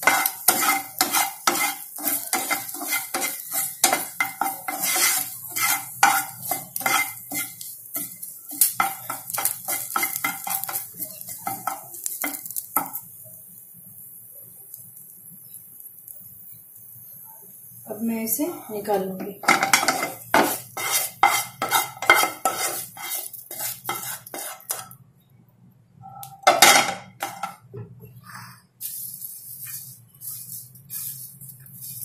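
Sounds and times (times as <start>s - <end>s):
wooden spatula scraping a pan: 0.0s - 13.0s, 18.8s - 24.9s, 26.5s - 27.6s, 28.2s - 32.0s
light sizzle: 0.0s - 32.0s.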